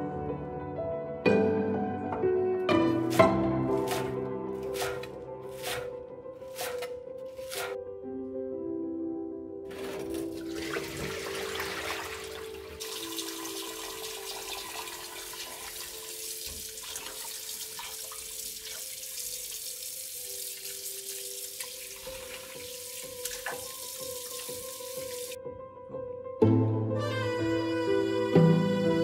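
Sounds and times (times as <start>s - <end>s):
water poured into steel sink: 9.7s - 25.4s.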